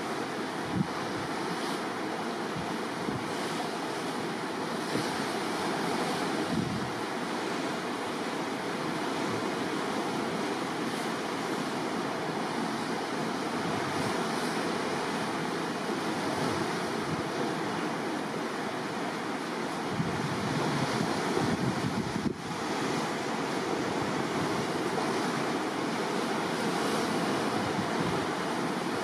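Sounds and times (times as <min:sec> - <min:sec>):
rough sea splashing: 0:00.0 - 0:29.0
wind buffeting microphone: 0:00.6 - 0:01.4, 0:05.8 - 0:07.0, 0:19.8 - 0:25.4, 0:26.7 - 0:28.5.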